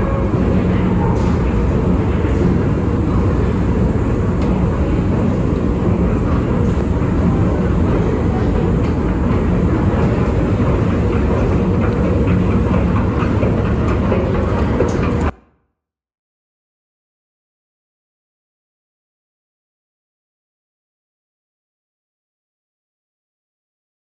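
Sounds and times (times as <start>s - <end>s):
train running: 0.0s - 15.4s
subway station rumbling din: 0.0s - 15.6s.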